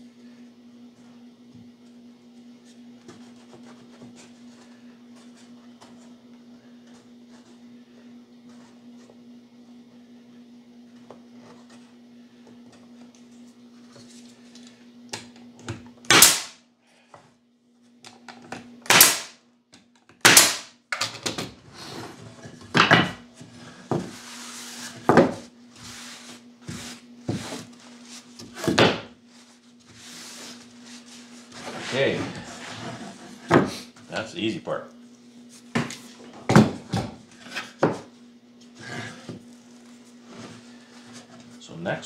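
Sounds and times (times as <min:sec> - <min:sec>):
nail gun shots: 0:16.1 - 0:16.6, 0:18.9 - 0:19.4, 0:20.2 - 0:20.7.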